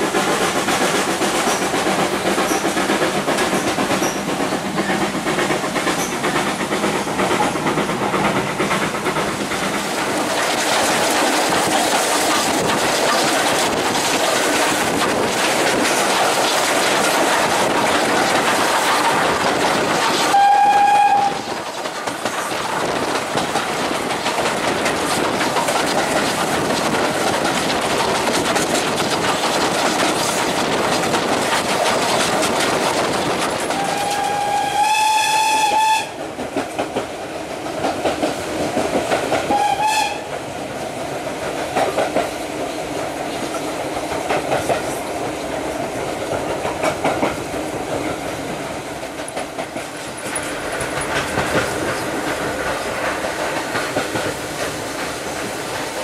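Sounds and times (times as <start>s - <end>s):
train wheels clattering over rails: 0.0s - 56.0s
steam locomotive whistle: 20.3s - 21.5s, 33.8s - 36.2s, 39.5s - 40.3s.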